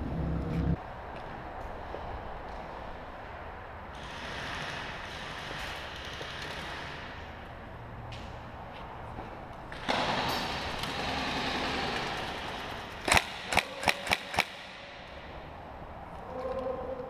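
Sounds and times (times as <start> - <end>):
airsoft gun shots: 13.0 - 15.0.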